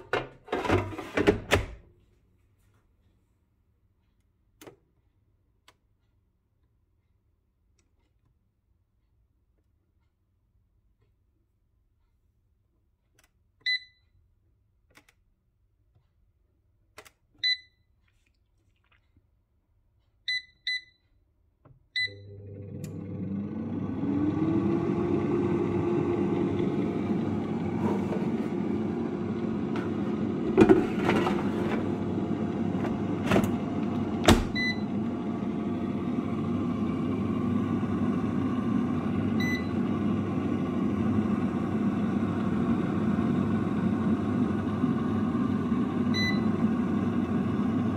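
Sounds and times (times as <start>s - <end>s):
air fryer button beeps: 13.6s - 14.0s, 17.4s - 17.8s, 20.3s - 21.0s, 22.0s - 23.1s, 32.9s - 35.4s, 39.2s - 39.9s, 46.0s - 46.7s
air fryer fan whirring: 22.0s - 47.9s.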